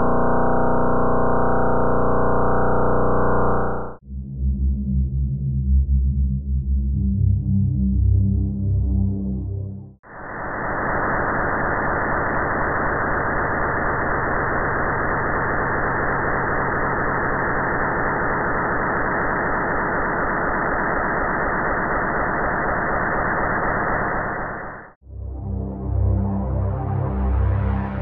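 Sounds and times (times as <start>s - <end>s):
muffled static-like hiss: 10.1s - 25.0s.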